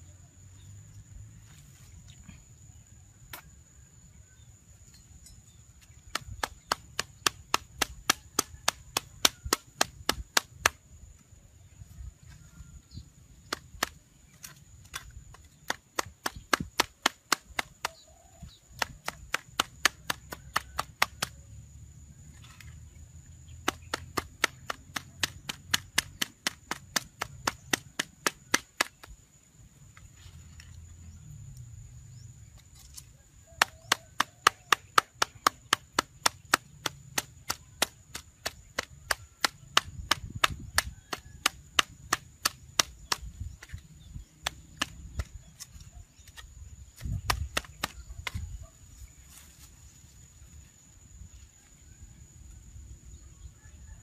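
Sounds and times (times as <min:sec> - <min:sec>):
blade chopping: 0:23.6 - 0:29.2.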